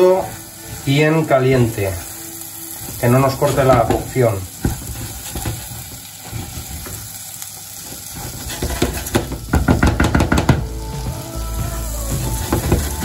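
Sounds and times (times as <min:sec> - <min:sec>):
light sizzle: 0:00.0 - 0:13.0
wooden spoon scraping saucepan: 0:07.8 - 0:09.4.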